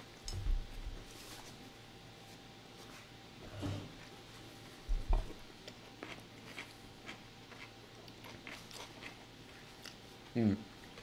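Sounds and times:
person chewing crunchy food: 5.1s - 11.0s.

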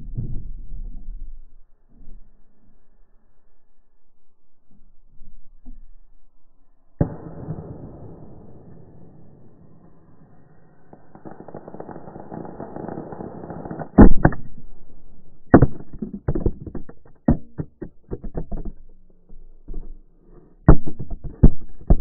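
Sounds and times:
deep drawn-out firework bangs: 7.0s - 14.4s
firework hiss: 7.9s - 14.0s.

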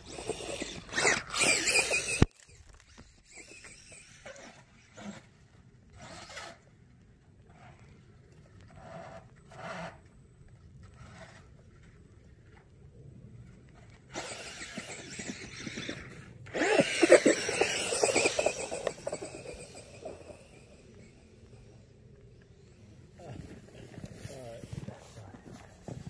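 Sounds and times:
electric motor whining: 0.0s - 4.7s, 14.1s - 21.9s
tires churning snow: 14.0s - 26.0s.

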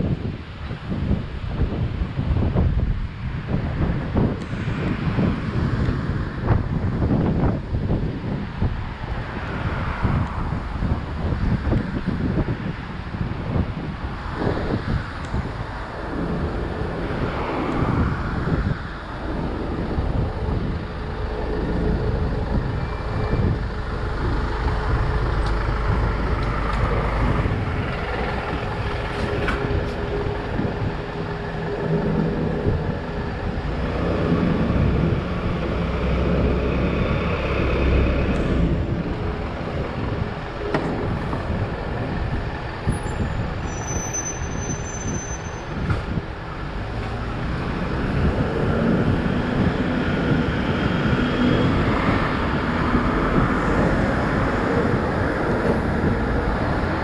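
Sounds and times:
passing cars and trucks: 0.0s - 57.0s
short high squeal: 43.0s - 45.8s.

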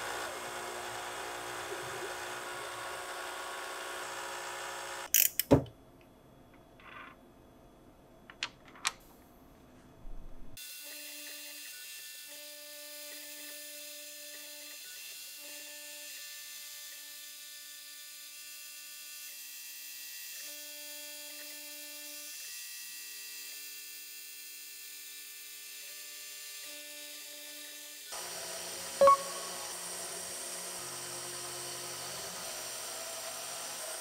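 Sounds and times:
milling machine cutting metal: 0.0s - 5.1s.

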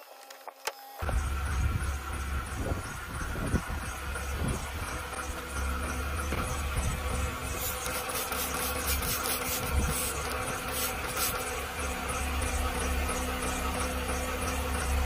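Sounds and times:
low buzzing hum: 0.0s - 15.0s
spray bottle squirts: 7.6s - 11.4s.

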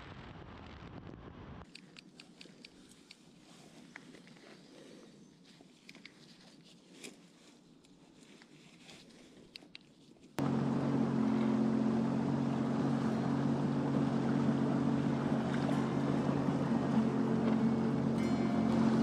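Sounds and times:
small clicks: 1.6s - 3.3s, 5.8s - 6.4s
watercraft engine running: 10.4s - 19.0s.

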